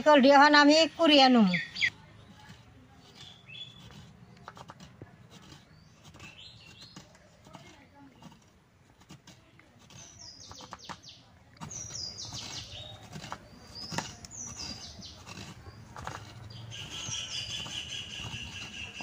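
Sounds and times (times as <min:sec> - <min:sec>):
coconut grater rasping: 0:00.0 - 0:19.0
bird calling: 0:16.4 - 0:19.0.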